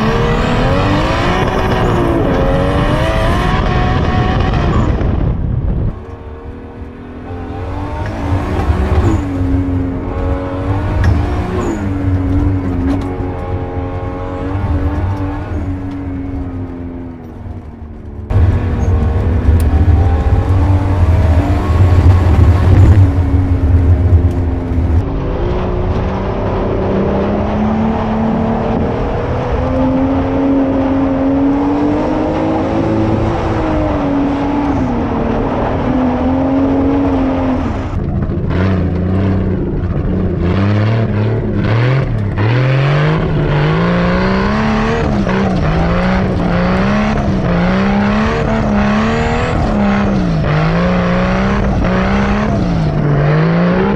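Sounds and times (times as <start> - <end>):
car engine revving hard: 0.0 - 4.8, 38.5 - 53.9
heavy low rumble: 0.0 - 27.8.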